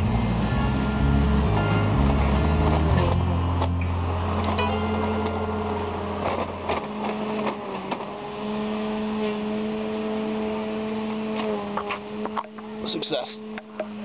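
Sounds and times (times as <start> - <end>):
deep rumble: 0.0 - 7.1
engine hum: 0.0 - 14.0.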